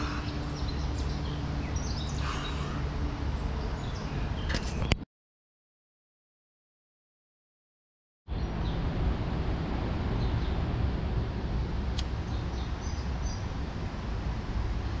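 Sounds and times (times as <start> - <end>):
faint bird chirps: 0.0 - 2.9.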